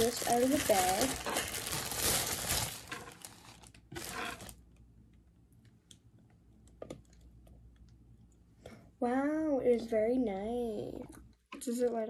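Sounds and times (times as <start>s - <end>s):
plastic bag rustling: 0.0s - 4.6s.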